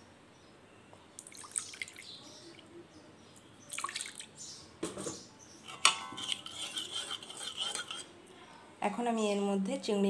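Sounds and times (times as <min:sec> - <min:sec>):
water splashing into paste: 0:03.7 - 0:04.3
spatula scraping metal pan: 0:05.6 - 0:08.2
spatula clinking on pan: 0:05.7 - 0:08.1.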